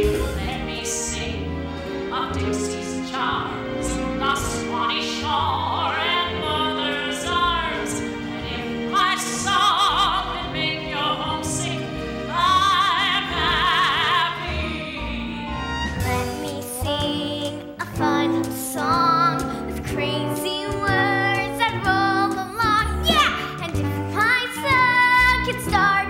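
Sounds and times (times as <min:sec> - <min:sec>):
pit orchestra playing: 0:00.0 - 0:26.0
woman singing with vibrato: 0:02.0 - 0:26.0.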